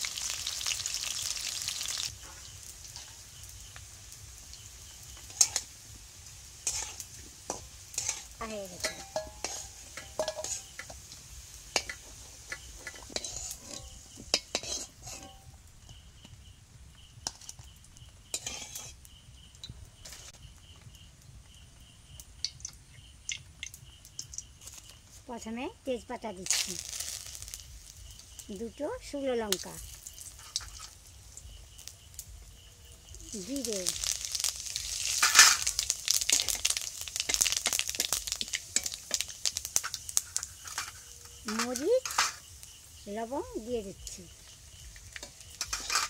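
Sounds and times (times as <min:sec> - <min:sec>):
hot oil foaming: 0:00.0 - 0:20.8, 0:26.1 - 0:46.0
metal spatula scraping: 0:05.2 - 0:05.7, 0:06.6 - 0:15.6, 0:18.3 - 0:19.0, 0:39.8 - 0:42.5, 0:44.7 - 0:46.0.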